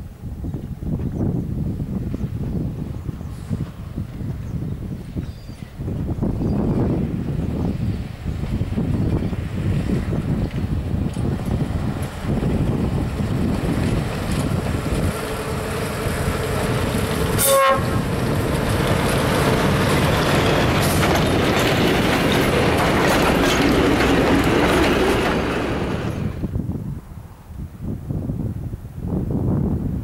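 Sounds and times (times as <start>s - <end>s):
wind: 0.0s - 30.0s
train wheels clattering over rails: 8.4s - 26.4s
train horn: 15.4s - 18.2s.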